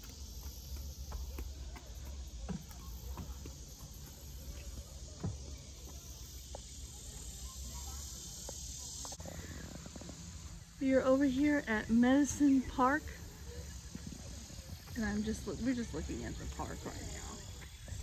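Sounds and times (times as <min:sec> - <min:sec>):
footsteps on bridge deck: 0:00.0 - 0:06.8
insects buzzing: 0:00.0 - 0:18.0.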